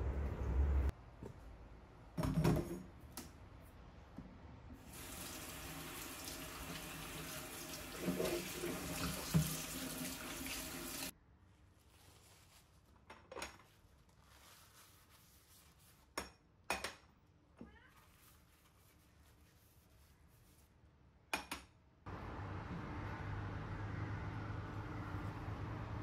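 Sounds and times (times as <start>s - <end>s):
sponge scrubbing bowl: 6.6s - 11.1s.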